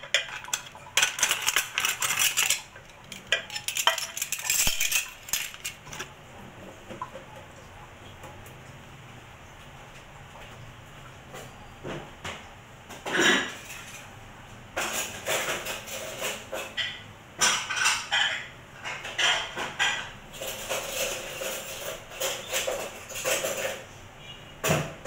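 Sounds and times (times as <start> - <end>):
dishes and cutlery clattering: 0.0 - 6.1, 12.9 - 14.2, 14.8 - 25.0.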